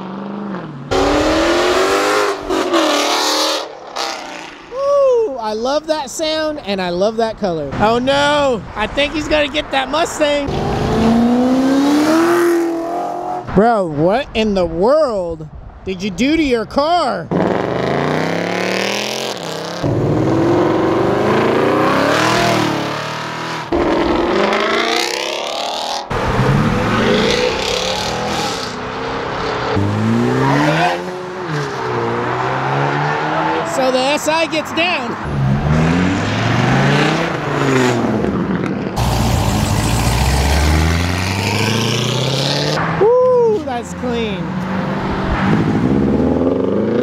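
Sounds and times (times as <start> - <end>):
cars accelerating away: 0.0 - 4.6, 10.4 - 13.4, 17.3 - 34.0, 35.2 - 43.0, 43.8 - 47.0
sports car accelerating past: 35.2 - 43.0.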